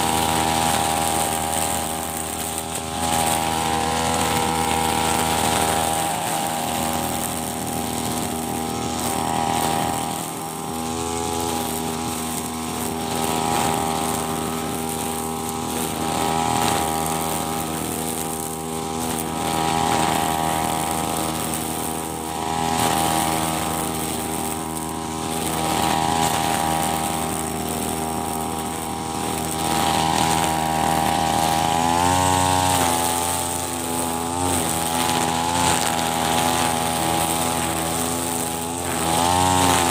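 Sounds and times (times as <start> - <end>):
brush cutter engine cutting grass: 0.0 - 39.9.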